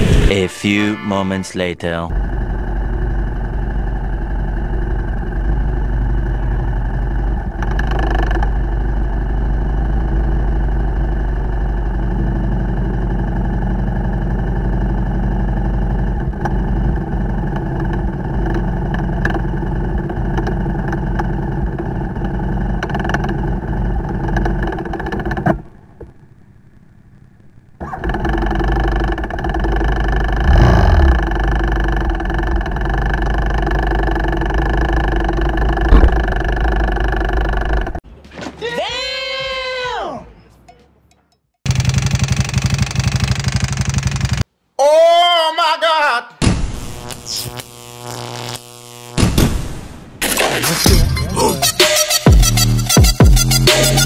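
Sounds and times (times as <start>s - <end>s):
motorcycle engine idling and revving: 2.1s - 38.0s, 40.8s - 44.5s.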